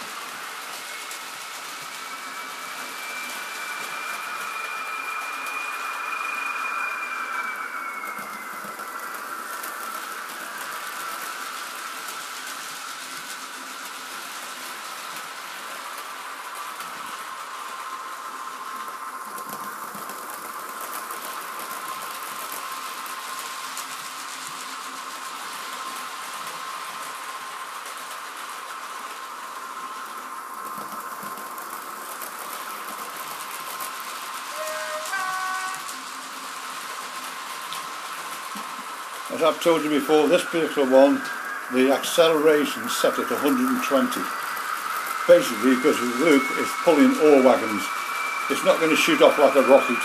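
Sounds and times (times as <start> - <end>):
small electric motors whining: 0.0 - 16.0, 29.0 - 50.0
wheels rattling on track: 0.0 - 50.0.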